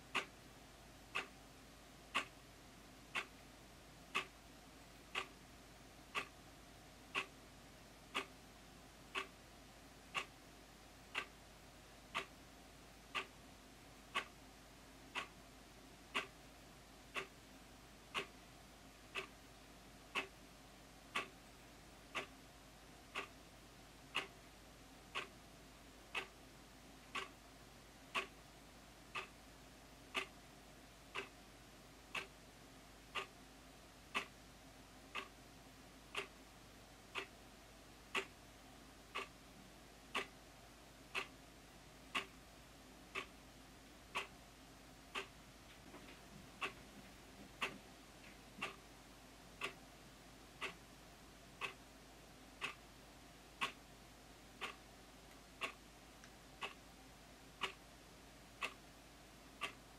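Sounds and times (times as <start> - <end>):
wall clock ticking: 0.0 - 0.4, 1.0 - 1.4, 2.0 - 2.4, 3.0 - 3.4, 4.0 - 5.4, 6.0 - 6.4, 7.0 - 7.4, 8.0 - 8.4, 9.0 - 9.4, 10.0 - 10.4, 11.0 - 12.4, 13.1 - 14.4, 15.1 - 15.4, 16.0 - 18.4, 19.0 - 27.5, 28.1 - 28.5, 29.1 - 32.4, 33.0 - 34.5, 35.1 - 36.5, 37.1 - 37.4, 38.0 - 41.4, 42.0 - 43.5, 44.1 - 59.9.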